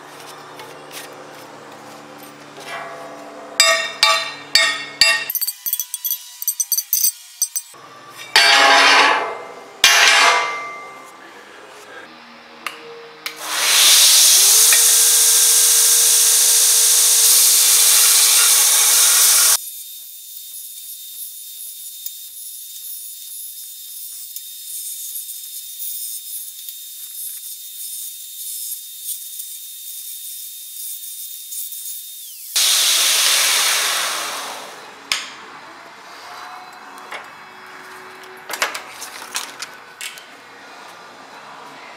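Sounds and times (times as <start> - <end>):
metal grinding on abrasive belt: 3.8 - 7.8, 14.4 - 19.6
belt grinder motor whine: 13.5 - 19.6, 31.4 - 33.8.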